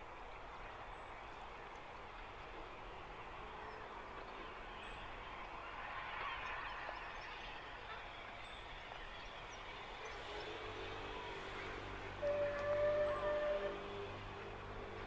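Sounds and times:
distant steam locomotive rumble: 0.0s - 15.0s
steam whistle: 12.2s - 14.2s.

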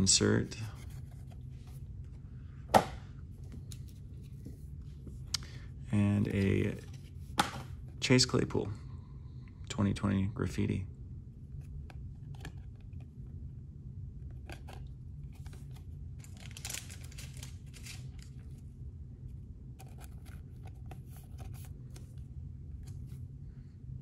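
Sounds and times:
steady low hum: 0.0s - 24.0s
card packs rustling and crinkling: 14.4s - 18.6s.

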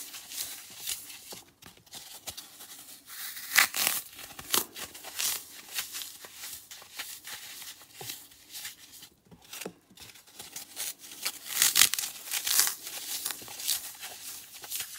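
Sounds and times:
dry foam crunching: 1.9s - 8.8s, 10.0s - 14.9s.

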